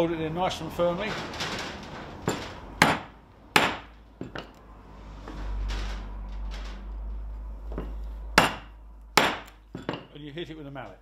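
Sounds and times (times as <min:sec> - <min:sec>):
mallet striking chisel handle: 0:08.4 - 0:10.1.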